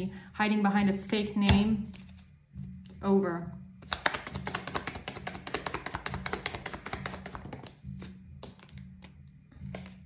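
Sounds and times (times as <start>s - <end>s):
cards being shuffled: 1.8s - 2.3s, 3.8s - 10.0s.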